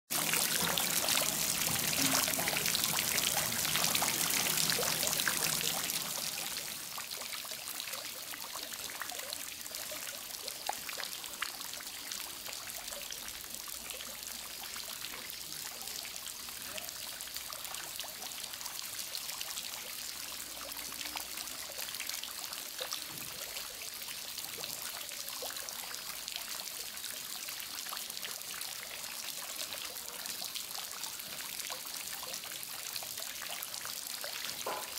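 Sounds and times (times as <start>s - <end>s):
water drips: 0.1s - 34.9s
water trickling into pool: 0.1s - 34.9s.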